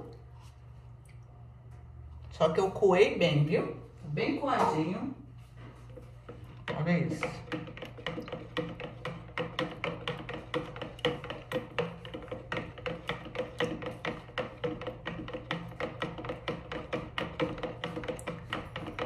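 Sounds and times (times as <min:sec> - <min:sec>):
stick clacking against plastic jug: 0:06.6 - 0:19.0.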